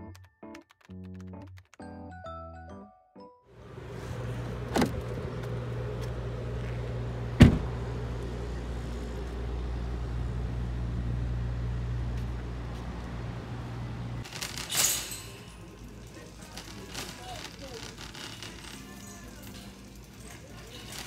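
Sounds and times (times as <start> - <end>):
vehicle engine humming: 3.6 - 14.3
sharp thump: 7.4 - 7.7.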